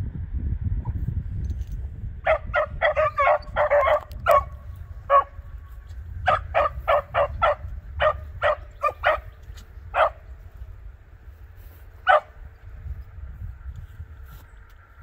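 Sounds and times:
dogs barking: 0:02.2 - 0:05.5, 0:06.2 - 0:10.3, 0:12.0 - 0:12.4.

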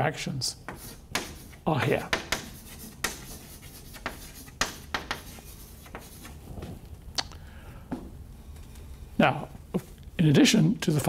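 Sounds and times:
chalk writing on blackboard: 0:00.7 - 0:06.4.

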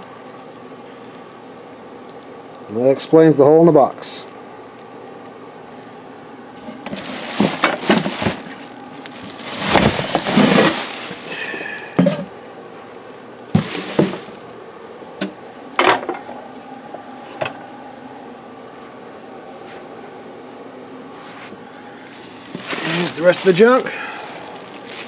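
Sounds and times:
plastic and cardboard rustling: 0:06.6 - 0:12.3, 0:13.5 - 0:14.4, 0:22.1 - 0:25.0.

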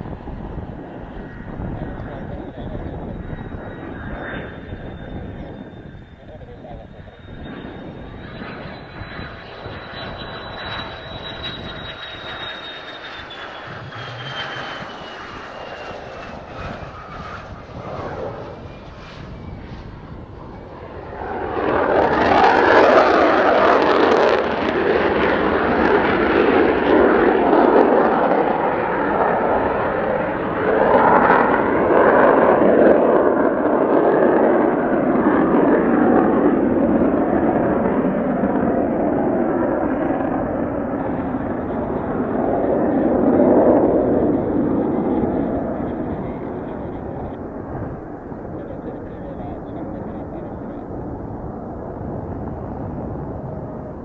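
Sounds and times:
jet engine whine: 0:00.0 - 0:54.0
jet spooling up and climbing: 0:00.0 - 0:54.0.

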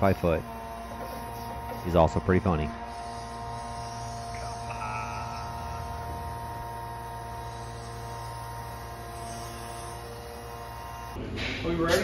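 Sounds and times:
hydraulic pump hum with whine: 0:00.0 - 0:11.6.

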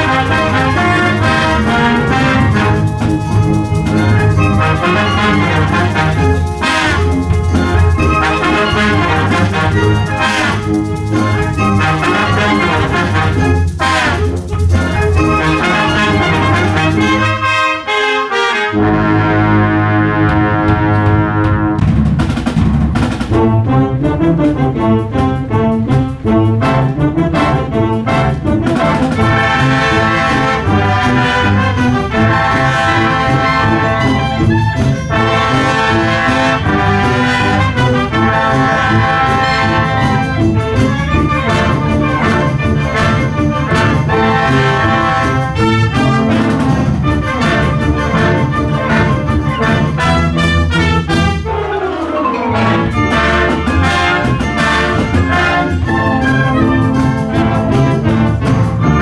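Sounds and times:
wind band playing: 0:00.0 - 0:59.0.

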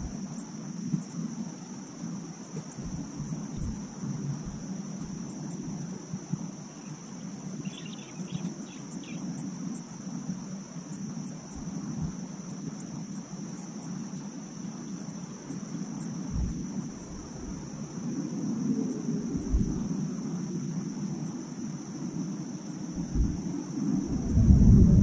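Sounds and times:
high drone of insects: 0:00.0 - 0:25.0
low rumble: 0:16.3 - 0:17.6, 0:24.0 - 0:25.0.

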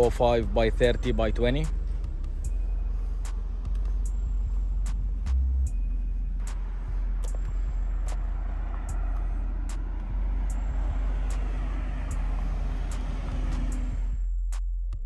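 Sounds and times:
car engine idling: 0:00.0 - 0:14.7.

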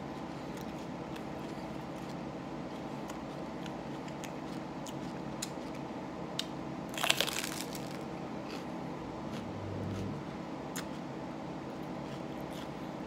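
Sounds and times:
crunchy bite into pepper: 0:06.9 - 0:08.7.

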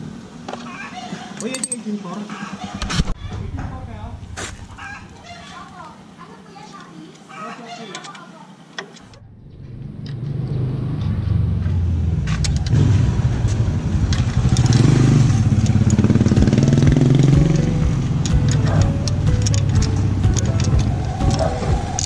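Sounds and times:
vehicle engine running: 0:02.3 - 0:06.0, 0:09.1 - 0:22.0.

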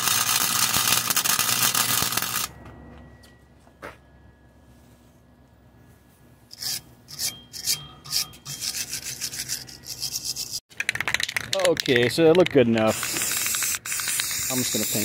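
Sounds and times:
wire brush scrubbing metal: 0:12.9 - 0:15.0.

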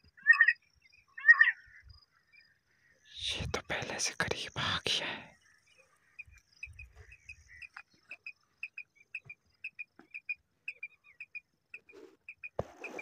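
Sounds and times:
quail chirps: 0:00.2 - 0:00.6, 0:01.2 - 0:01.9, 0:06.1 - 0:13.0.

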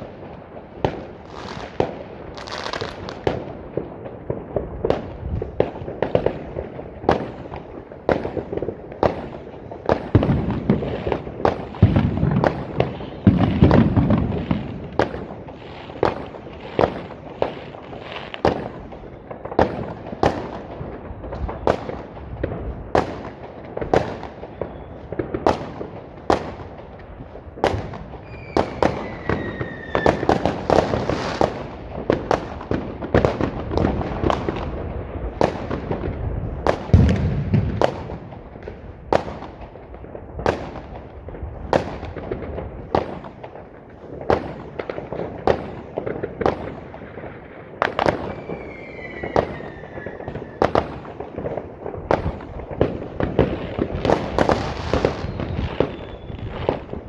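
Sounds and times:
firecrackers banging and crackling: 0:00.0 - 0:57.0
falling firework whistles: 0:24.1 - 0:25.2, 0:27.8 - 0:31.6, 0:47.9 - 0:51.0, 0:53.8 - 0:57.0
deep firework boom: 0:36.9 - 0:38.2.

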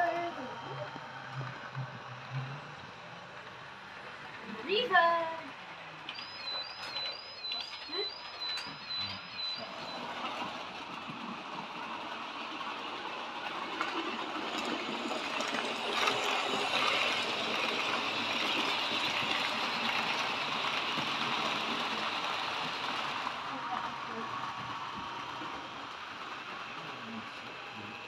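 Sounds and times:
model train motors whirring: 0:00.0 - 0:28.0
repeated high chirp: 0:06.1 - 0:10.1.

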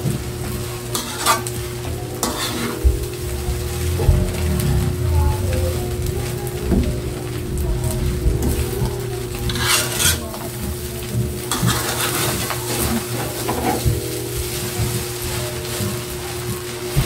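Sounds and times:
rice sizzling in pan: 0:00.0 - 0:17.0
metal spatula scraping wok: 0:00.9 - 0:01.6, 0:02.2 - 0:06.5, 0:09.2 - 0:10.5, 0:11.4 - 0:13.8.

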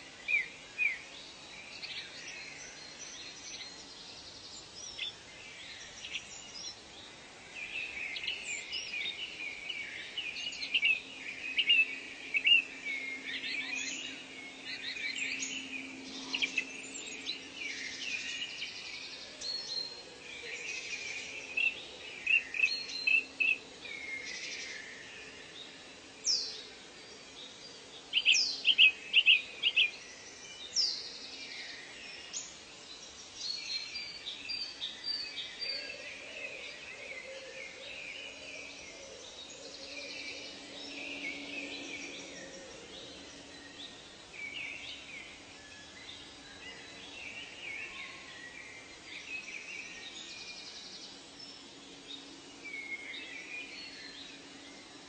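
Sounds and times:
steady background hiss: 0:00.0 - 0:55.0
wild birds calling and singing: 0:00.0 - 0:55.0.

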